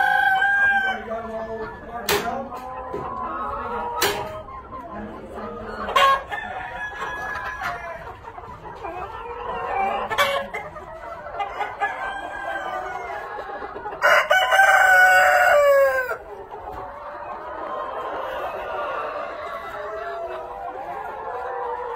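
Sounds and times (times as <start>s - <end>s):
chickens clucking: 0.0s - 21.9s
rooster crowing: 14.0s - 16.2s.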